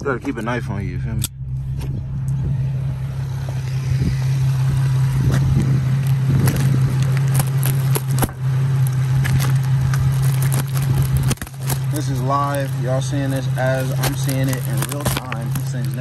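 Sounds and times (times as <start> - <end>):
steady low hum: 0.0 - 16.0
bubble wrap rustling and crackling: 6.0 - 16.0
knife cutting bubble wrap: 10.2 - 12.7, 13.7 - 16.0.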